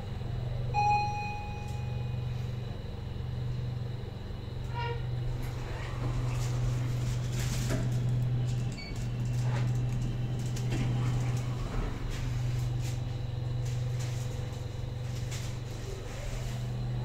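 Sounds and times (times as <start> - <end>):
elevator low hum: 0.0 - 17.0
short electronic beep: 0.8 - 2.3.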